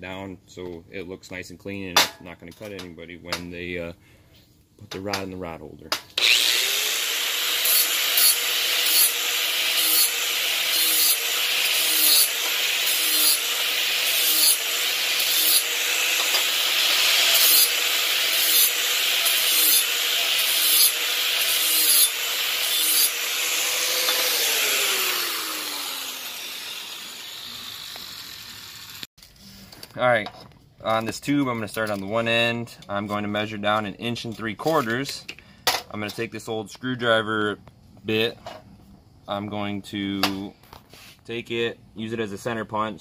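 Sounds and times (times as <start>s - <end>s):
angle grinder grinding metal: 6.2s - 29.1s
grinder spinning down: 6.2s - 29.1s.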